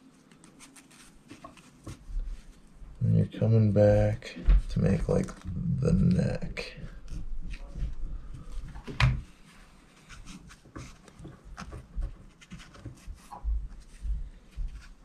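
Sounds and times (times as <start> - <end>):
low thuds: 4.0 - 5.9.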